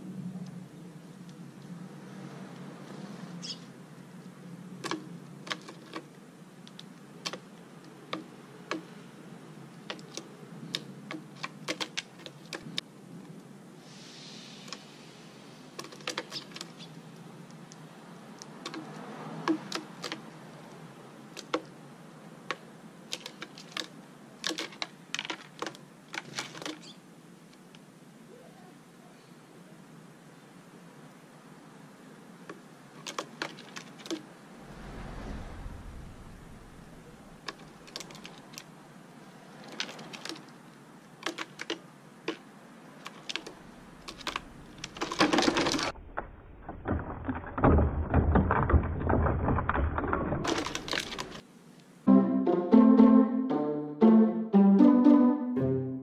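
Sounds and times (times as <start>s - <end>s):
birds pecking grain on concrete: 4.7s - 27.8s, 32.4s - 34.4s, 37.4s - 45.9s, 48.4s - 51.4s.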